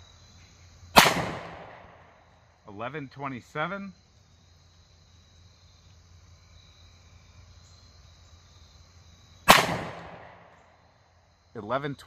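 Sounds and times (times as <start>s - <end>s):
insects buzzing: 0.0s - 12.0s
pistol shot echoing: 1.0s - 2.1s, 9.5s - 10.5s.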